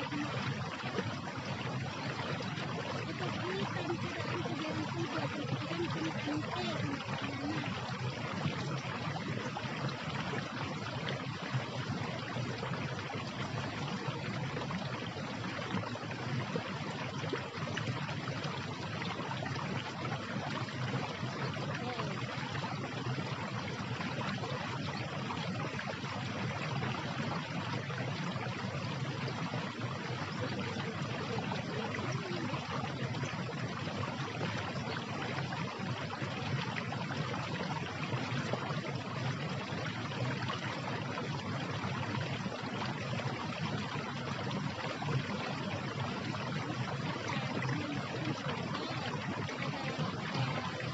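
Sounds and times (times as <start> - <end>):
rushing flowing water: 0.0 - 50.9.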